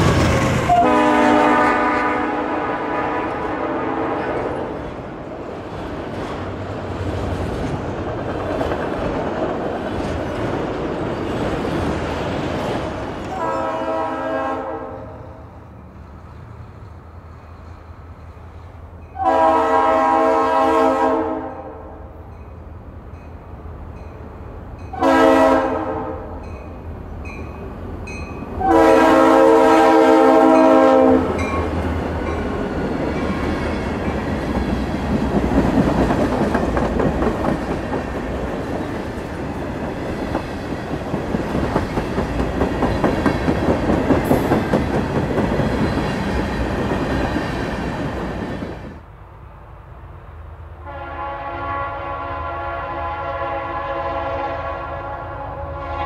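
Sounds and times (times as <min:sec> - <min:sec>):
locomotive air horn chord: 0:00.7 - 0:04.7, 0:13.3 - 0:15.4, 0:19.2 - 0:22.0, 0:24.9 - 0:26.4, 0:28.6 - 0:31.4, 0:50.8 - 0:56.0.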